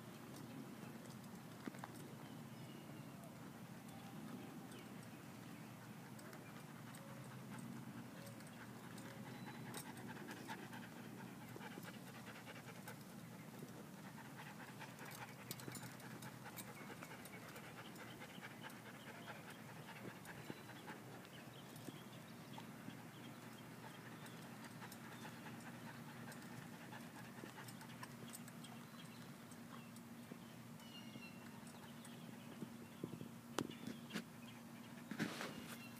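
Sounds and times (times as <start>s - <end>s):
dog panting: 5.8s - 28.4s.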